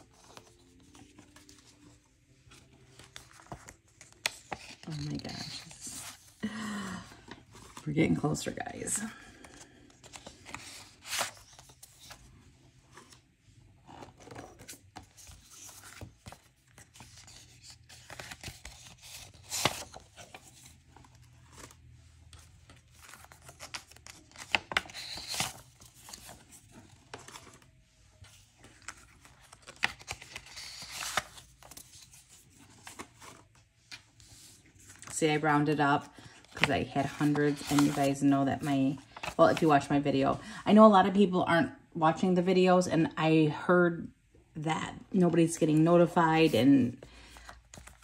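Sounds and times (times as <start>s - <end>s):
paper money rustling: 0.0s - 6.7s, 13.9s - 33.5s, 36.1s - 39.8s.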